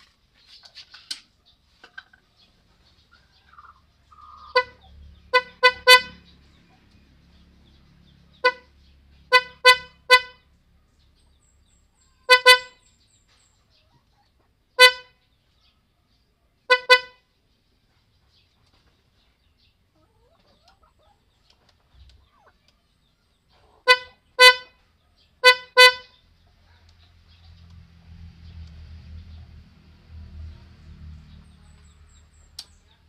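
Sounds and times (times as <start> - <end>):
scooter horn toots: 4.5 - 6.4, 8.3 - 8.7, 9.3 - 10.5, 12.2 - 12.9, 14.8 - 15.2, 16.7 - 17.2, 23.8 - 24.8, 25.4 - 26.2.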